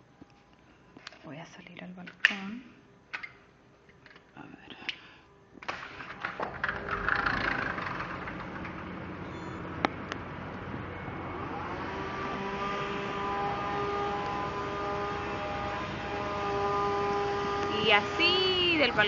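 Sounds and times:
engine drone: 5.8s - 19.0s
city traffic rush: 7.2s - 19.0s.

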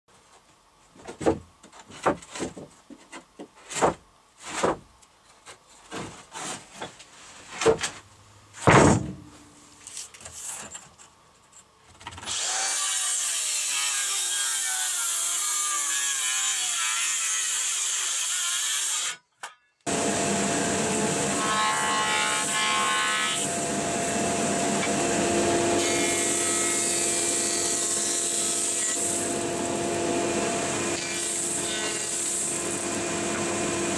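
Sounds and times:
wooden boards knocking: 8.6s - 9.3s
circular saw cutting wood: 12.2s - 19.2s, 19.9s - 33.9s.

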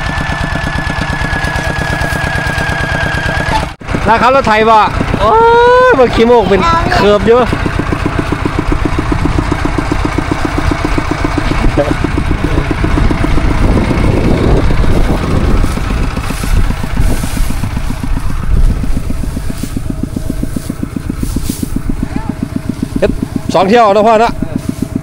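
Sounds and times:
diesel engine chugging: 0.0s - 25.0s.

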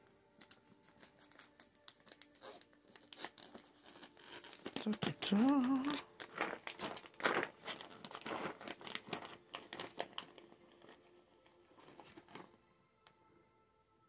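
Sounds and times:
plastic pouch crinkling: 0.3s - 11.2s.

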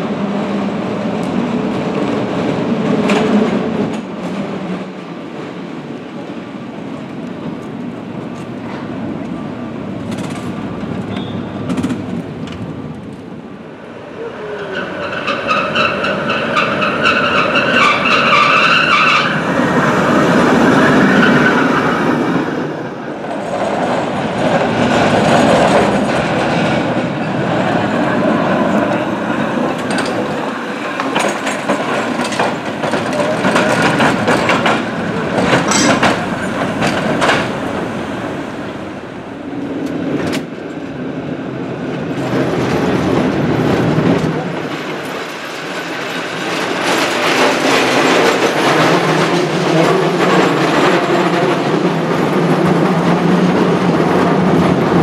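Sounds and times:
steel wheels rumbling on rails: 0.0s - 55.0s
sharp metal clanks: 35.5s - 36.5s.

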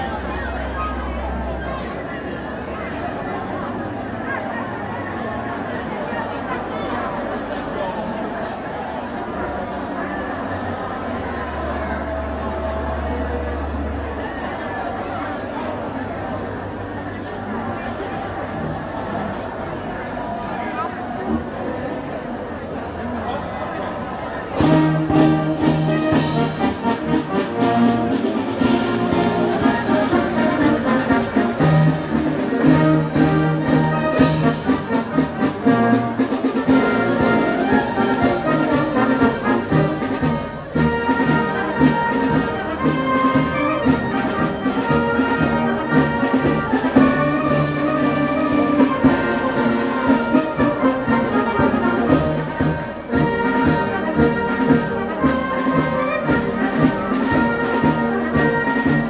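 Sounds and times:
brass marching band playing: 24.5s - 59.0s
snare drums: 24.6s - 59.0s.

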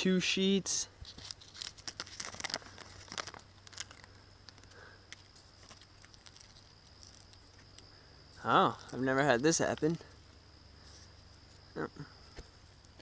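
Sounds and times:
bark crackling and tearing: 1.0s - 7.9s.

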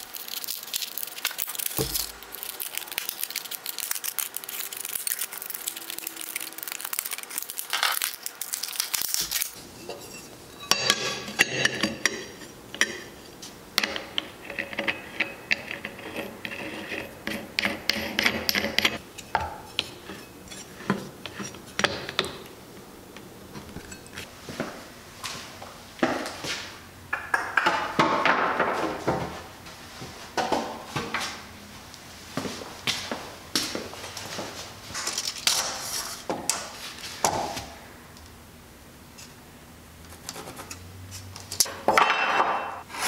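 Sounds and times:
plastic blister pack crinkling: 0.0s - 9.6s
scissors cutting plastic: 0.0s - 9.6s.

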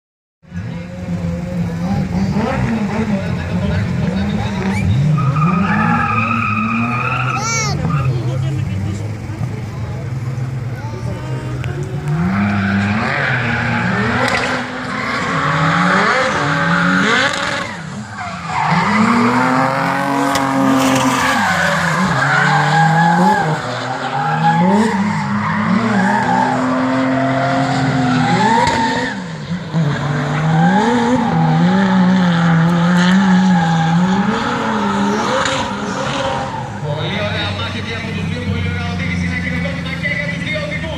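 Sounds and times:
car engine revving: 0.5s - 40.9s
tyres squealing: 4.6s - 8.9s.

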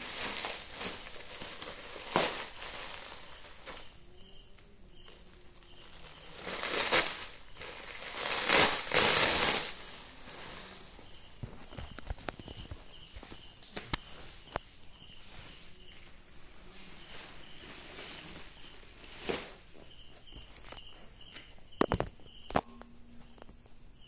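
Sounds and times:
plastic bag crinkling: 0.0s - 4.0s, 5.8s - 13.4s.

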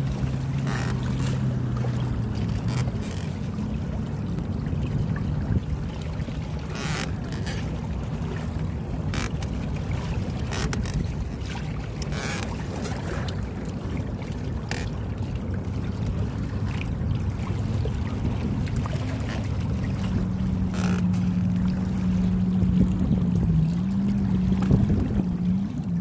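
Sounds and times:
water washing along hulls: 0.0s - 26.0s
wind buffeting microphone: 13.5s - 26.0s.

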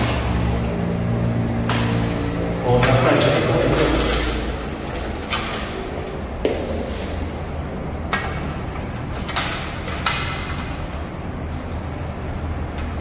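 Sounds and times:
steady low hum: 0.0s - 13.0s
sharp clicks and knocks: 8.0s - 11.0s.

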